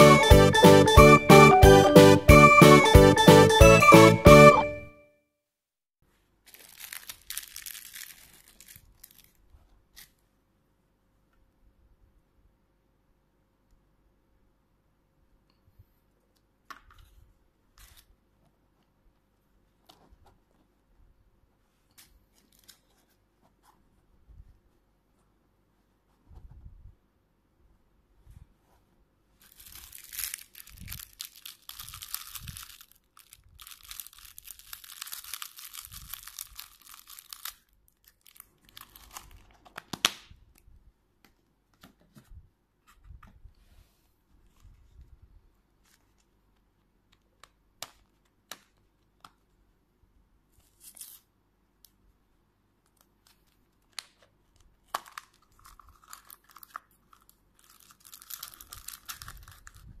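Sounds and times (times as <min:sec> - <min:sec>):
plastic wrapping crinkling and tearing: 0:06.4 - 0:10.2, 0:29.4 - 0:40.1, 0:53.1 - 1:00.0.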